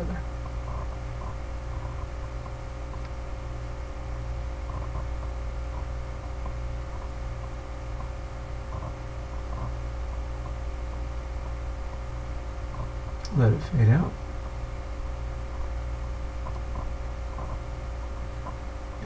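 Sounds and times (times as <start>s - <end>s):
low electrical hum: 0.0s - 19.0s
microphone hiss: 0.0s - 19.0s
faint small ticks: 0.4s - 3.2s, 4.6s - 10.6s, 11.9s - 13.4s, 16.4s - 17.7s.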